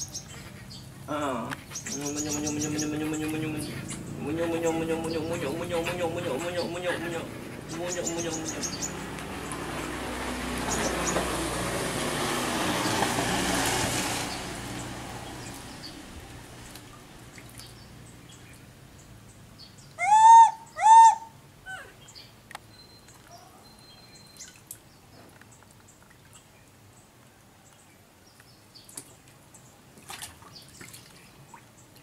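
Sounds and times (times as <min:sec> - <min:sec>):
water splashing in plastic tub: 0:08.9 - 0:17.8, 0:28.9 - 0:32.0
monkey calling: 0:20.0 - 0:22.0.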